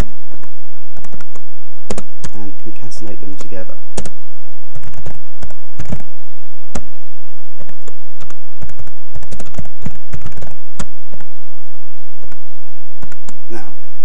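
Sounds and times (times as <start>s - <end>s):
typing on computer keyboard: 7.6s - 10.9s.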